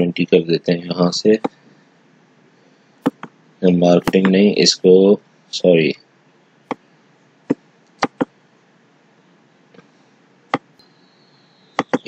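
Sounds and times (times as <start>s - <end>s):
computer mouse clicking: 3.0s - 3.3s, 8.0s - 8.3s, 11.8s - 12.0s.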